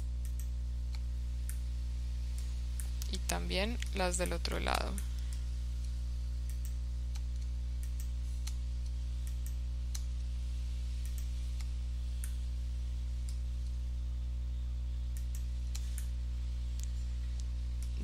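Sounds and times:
low electrical hum: 0.0 - 18.0
computer mouse clicking: 6.4 - 10.1, 11.0 - 12.4.

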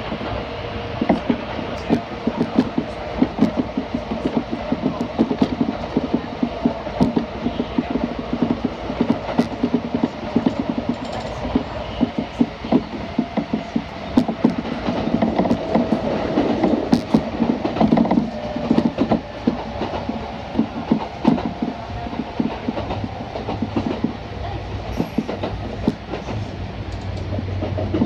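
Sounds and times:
train passing alongside: 0.0 - 28.0
train running rumble: 0.0 - 28.0.

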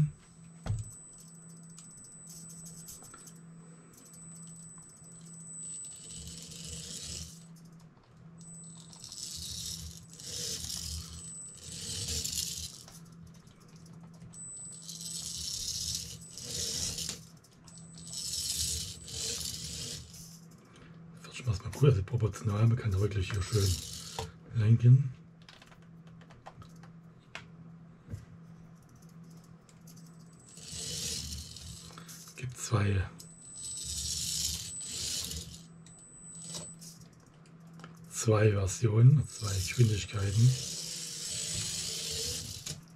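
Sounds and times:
thin high whine: 0.0 - 25.2, 28.1 - 42.9
toy car motor whirring: 5.1 - 7.7, 8.4 - 13.9, 14.7 - 20.5, 22.9 - 24.4, 29.9 - 32.4, 33.2 - 37.9, 39.2 - 42.9.

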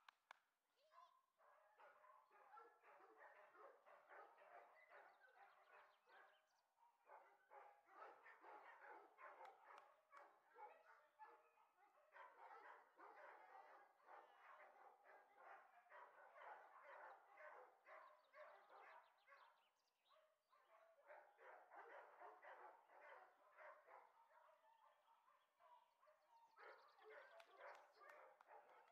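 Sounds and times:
faint dogs barking: 0.8 - 28.9.

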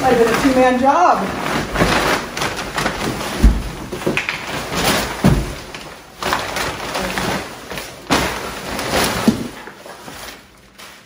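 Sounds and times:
leaves brushing: 0.0 - 3.6
cardboard and paper rustling: 0.0 - 11.0.

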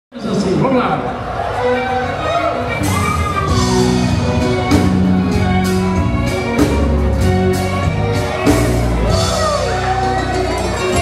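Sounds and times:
accordion chords: 1.3 - 11.0
drum kit beat: 2.8 - 11.0.

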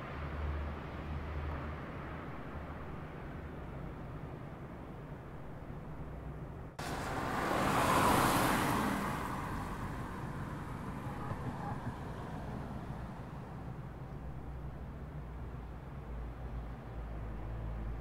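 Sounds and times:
car driving on wet pavement: 6.8 - 10.8.

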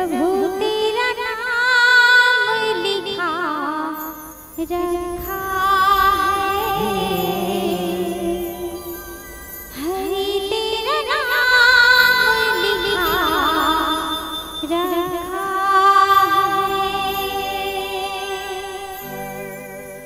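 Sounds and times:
woman singing into a microphone: 0.0 - 19.4
sustained keyboard notes: 4.6 - 19.9.

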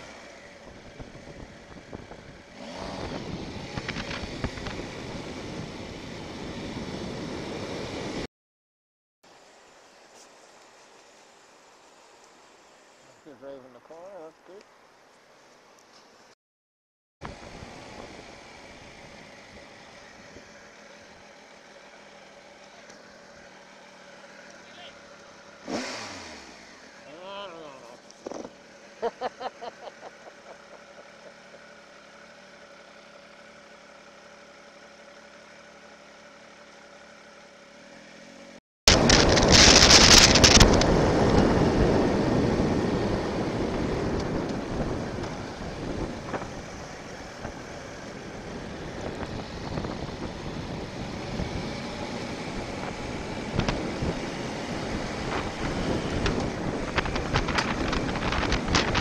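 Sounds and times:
wind noise on microphone: 0.7 - 8.1, 38.9 - 46.8, 47.4 - 59.0
motorcycle engine idling: 17.2 - 25.8, 26.6 - 40.2, 41.5 - 59.0.

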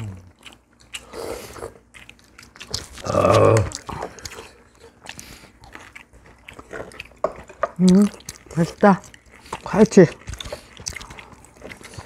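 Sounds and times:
chewing: 0.0 - 12.0
person grunting: 3.0 - 3.8
chopsticks and spoons clicking on dishes: 6.7 - 8.2.

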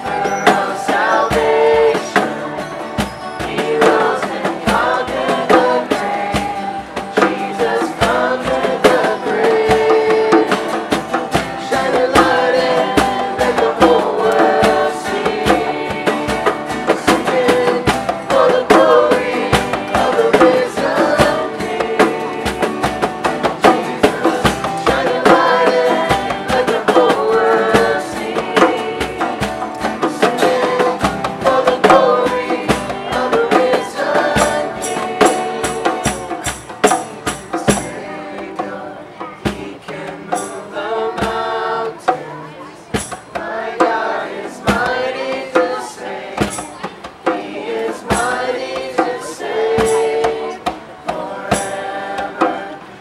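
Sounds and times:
group singing: 0.0 - 53.0
strummed acoustic guitars: 0.0 - 53.0.

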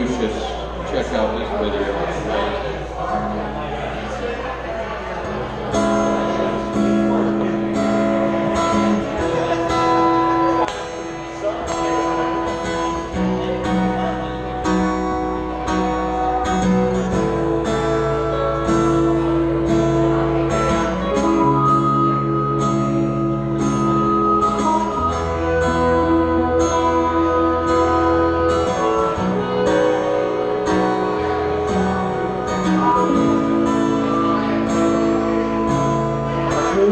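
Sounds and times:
acoustic guitar strumming: 0.0 - 36.9
harmonica playing held notes: 18.1 - 36.9.

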